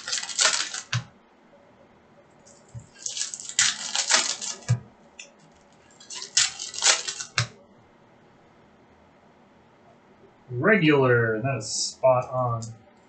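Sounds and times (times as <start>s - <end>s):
foil wrapper crinkling: 0.0s - 1.1s, 2.5s - 7.6s.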